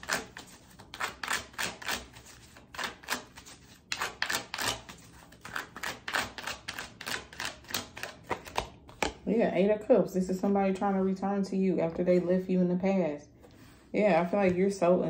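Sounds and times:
cards being shuffled: 0:00.0 - 0:09.2.

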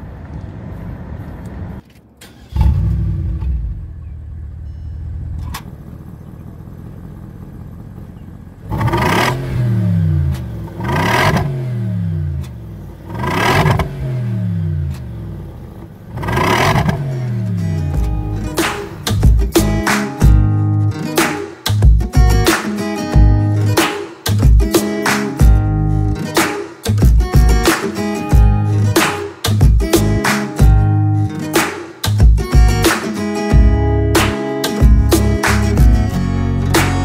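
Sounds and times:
car engine idling and revving: 0:00.0 - 0:20.9, 0:21.7 - 0:37.0.

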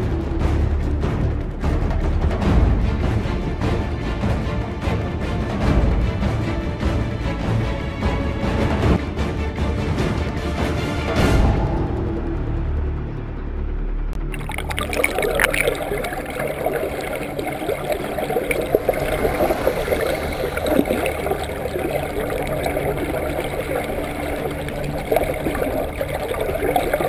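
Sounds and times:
underwater water rushing and bubbling: 0:14.2 - 0:27.0.

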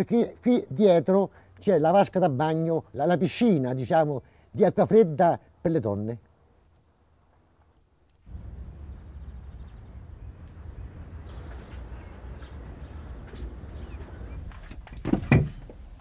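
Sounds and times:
low rumble: 0:08.3 - 0:14.6
faint bird chirps: 0:08.9 - 0:14.5.

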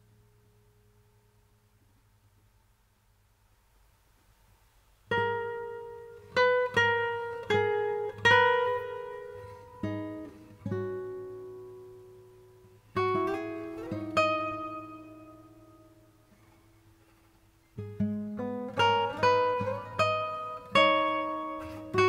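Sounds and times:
solo acoustic guitar: 0:05.0 - 0:22.0.

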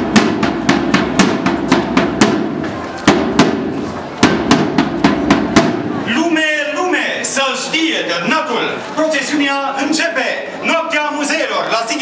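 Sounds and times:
side drum marching beat: 0:00.0 - 0:06.1.

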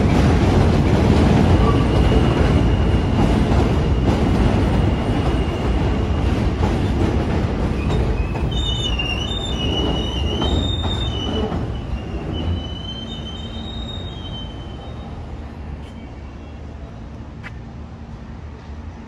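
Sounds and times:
low train rumble: 0:00.0 - 0:19.0
train wheels squealing on rails: 0:01.3 - 0:07.0, 0:07.6 - 0:17.0.

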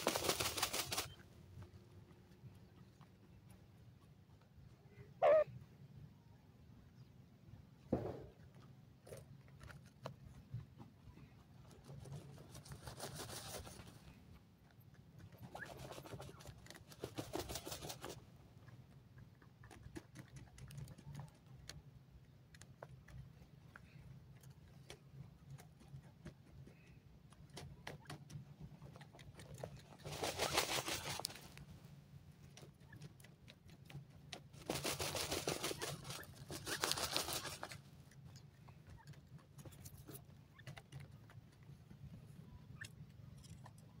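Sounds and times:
scratching in dry soil: 0:00.0 - 0:01.8, 0:08.6 - 0:44.0
wings fluttering in dirt: 0:00.0 - 0:01.8, 0:11.5 - 0:14.2, 0:15.2 - 0:18.3, 0:19.3 - 0:21.8, 0:23.8 - 0:31.7, 0:32.4 - 0:42.1.

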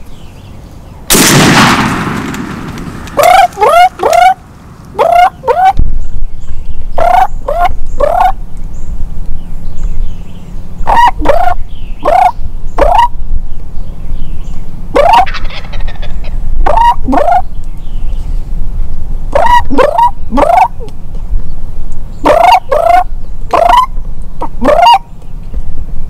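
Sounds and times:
steady low rumble: 0:00.0 - 0:26.0
turkeys gobbling: 0:03.1 - 0:05.8, 0:07.0 - 0:08.4, 0:10.8 - 0:13.1, 0:14.9 - 0:17.5, 0:19.3 - 0:20.8, 0:22.2 - 0:25.0.

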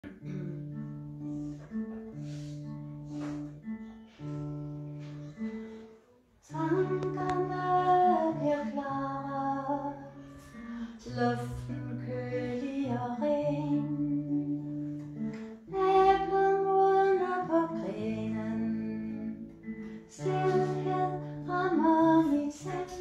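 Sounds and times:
acoustic guitar playing: 0:00.0 - 0:23.0.

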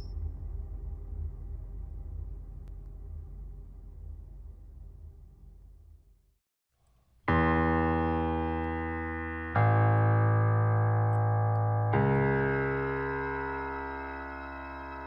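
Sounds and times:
sustained keyboard chords: 0:07.3 - 0:15.0.

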